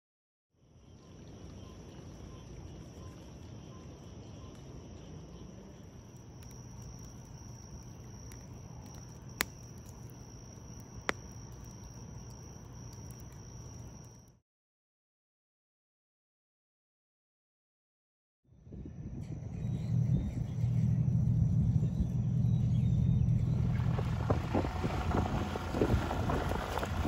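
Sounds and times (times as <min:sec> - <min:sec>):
night insects trilling: 0:00.6 - 0:14.4, 0:19.1 - 0:27.0
campfire crackling: 0:00.8 - 0:14.4, 0:23.4 - 0:27.0
sharp pops from fire: 0:06.0 - 0:14.3.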